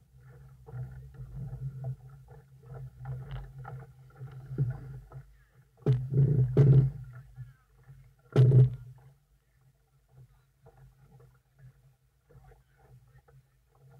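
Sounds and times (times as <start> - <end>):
water slapping against boat hull: 0.2 - 9.1.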